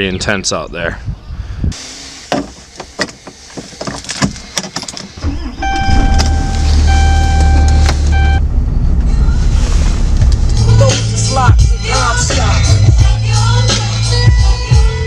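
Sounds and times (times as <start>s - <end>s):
truck engine and road rumble: 1.1s - 13.7s
electronic tone: 5.2s - 9.6s.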